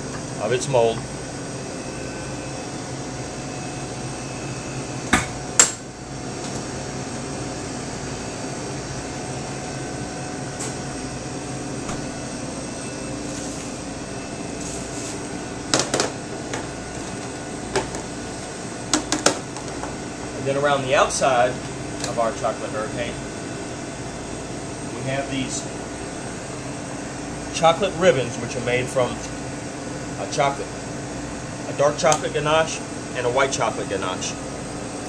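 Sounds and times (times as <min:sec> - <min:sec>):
kitchen ventilation hum: 0:00.0 - 0:35.0.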